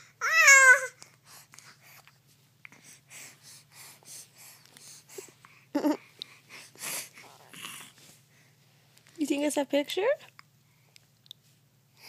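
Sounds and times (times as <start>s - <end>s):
baby breathing: 0.8s - 8.6s.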